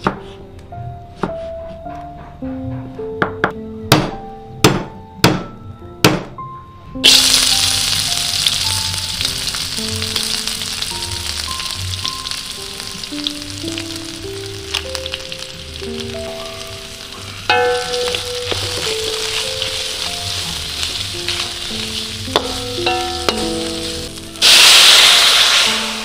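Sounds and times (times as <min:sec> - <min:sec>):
slow melody of held notes: 0:00.0 - 0:24.5
food sizzling in hot oil: 0:07.0 - 0:26.0.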